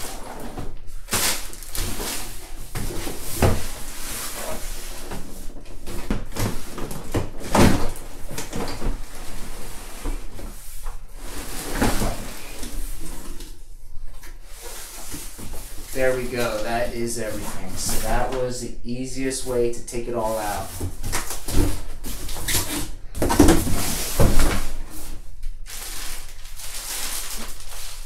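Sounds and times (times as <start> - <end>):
plastic crinkling: 1.0 - 2.4, 23.7 - 28.0
cardboard scraping: 20.4 - 28.0.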